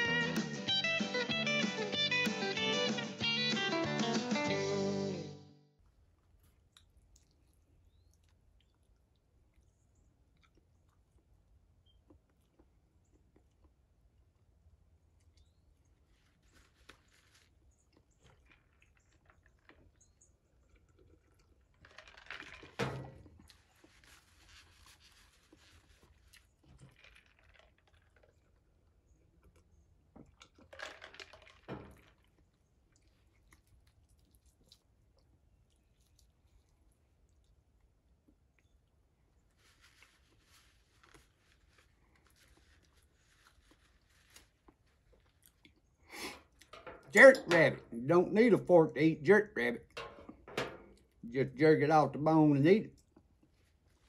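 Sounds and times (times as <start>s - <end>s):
chewing food: 5.8s - 47.1s, 52.8s - 54.0s
drinking from a plastic cup: 15.0s - 46.8s.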